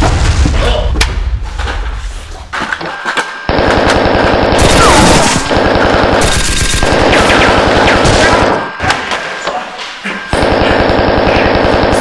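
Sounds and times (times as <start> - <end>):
machine-gun fire: 3.5 - 8.7, 10.3 - 12.0.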